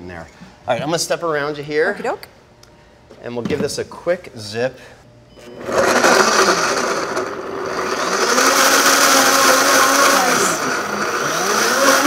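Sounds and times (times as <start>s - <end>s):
blender motor running: 5.4s - 12.0s.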